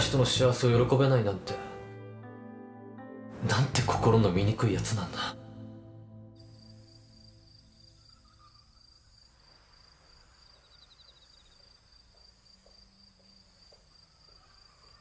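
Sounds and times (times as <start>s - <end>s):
cricket trill: 6.4s - 15.0s
high-pitched insect drone: 6.4s - 15.0s.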